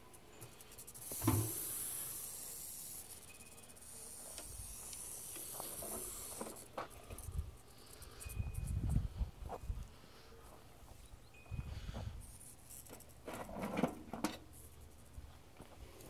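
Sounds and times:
rattlesnake rattling buzz: 0:00.0 - 0:08.9, 0:12.2 - 0:13.3
thump: 0:01.2 - 0:01.6.

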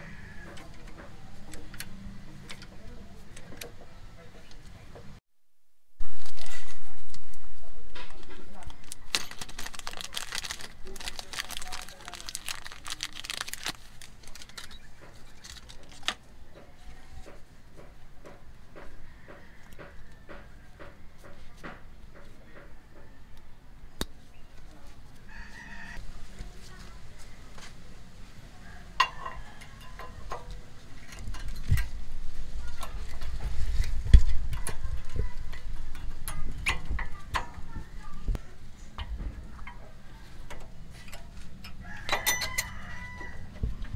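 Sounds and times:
plastic bag crinkling: 0:08.2 - 0:16.2.

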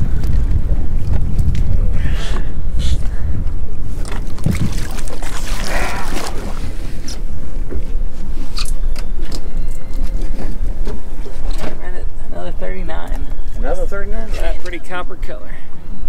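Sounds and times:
heavy low rumble: 0:00.0 - 0:08.4
water splashing: 0:04.0 - 0:07.2.

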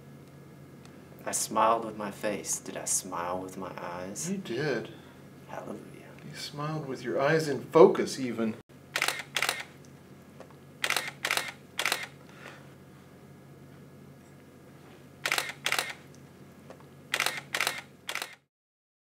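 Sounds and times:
camera shutter clicks: 0:08.9 - 0:09.7, 0:10.8 - 0:12.2, 0:15.2 - 0:16.1, 0:17.1 - 0:18.5.

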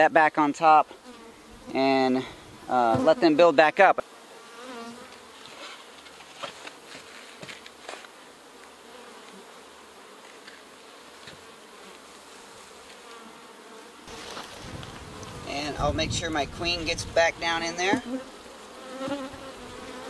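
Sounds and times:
bees buzzing: 0:00.9 - 0:20.0
wooden hive boxes knocking: 0:17.6 - 0:18.2.

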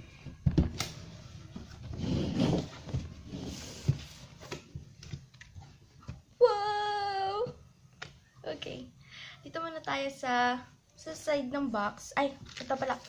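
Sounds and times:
cardboard scraping and rustling: 0:00.9 - 0:05.3.

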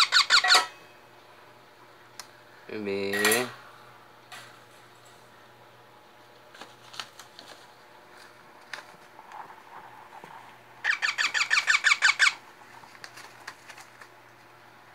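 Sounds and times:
parrot squeaky chirps: 0:00.0 - 0:00.7, 0:10.8 - 0:12.4.

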